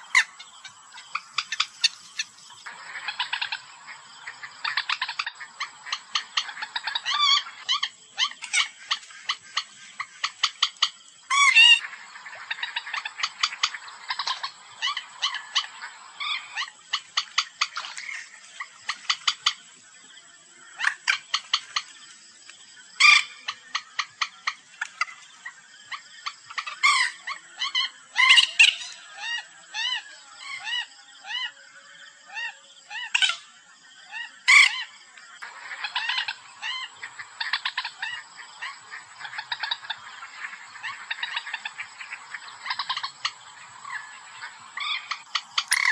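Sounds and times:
moorhen clicking calls: 0.0 - 19.6, 23.0 - 30.0, 34.1 - 45.9
harsh falling bird calls: 0.0 - 19.7, 32.3 - 45.9.

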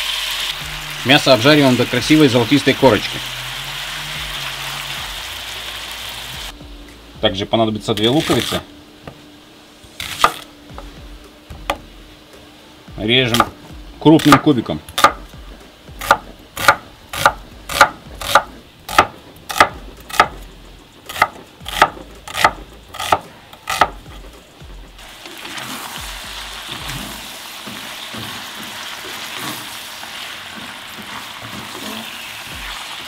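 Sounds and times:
meat sizzling in a pan: 0.0 - 6.6, 25.0 - 33.0
knife chopping on wooden board: 15.0 - 15.3, 16.0 - 20.4, 21.1 - 24.2
spatula stirring in a pan: 25.1 - 33.0.

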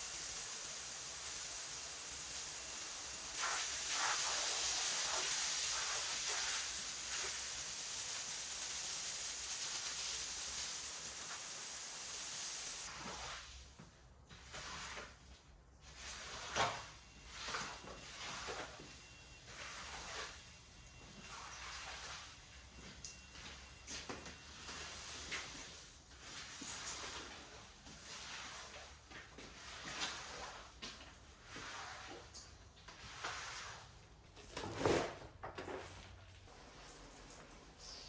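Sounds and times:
pressure washer spraying water: 0.0 - 12.9
squeegee pushing water on tiles: 14.3 - 18.6.

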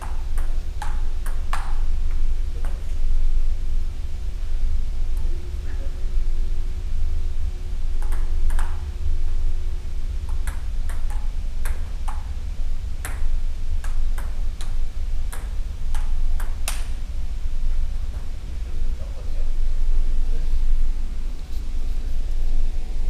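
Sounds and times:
ping pong ball taps: 0.0 - 1.8, 2.6 - 2.8, 8.0 - 8.8, 10.3 - 12.3, 13.0 - 17.0.

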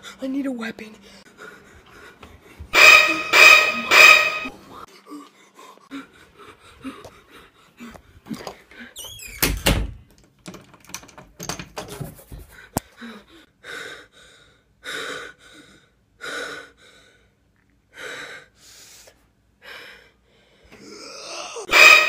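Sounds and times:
person breathing heavily: 1.0 - 3.3, 4.6 - 9.0, 12.4 - 21.0
knocks and clatter: 9.6 - 12.5.

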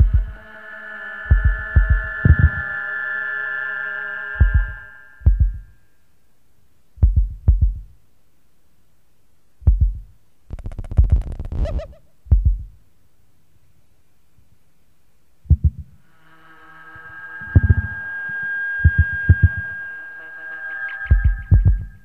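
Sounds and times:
deep heavy thuds: 7.0 - 7.9, 9.6 - 10.1, 12.3 - 12.8, 15.5 - 16.0
rapid crackling clicks: 10.5 - 11.8.

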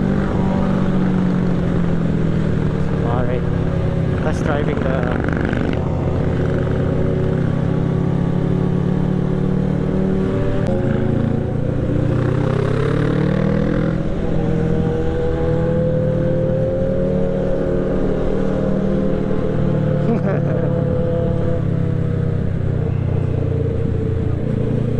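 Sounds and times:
motorcycle engine running: 0.0 - 15.6.

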